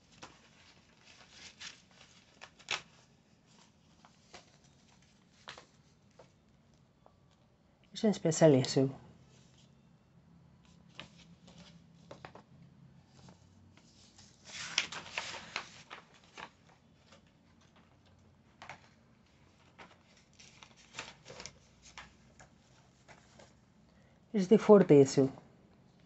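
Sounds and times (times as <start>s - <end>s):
comic book pages turning: 0.1s - 6.5s, 10.6s - 23.6s.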